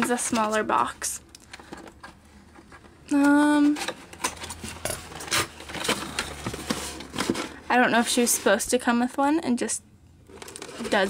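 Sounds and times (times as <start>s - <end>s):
cardboard packaging rustling: 1.6s - 8.6s, 10.3s - 11.0s.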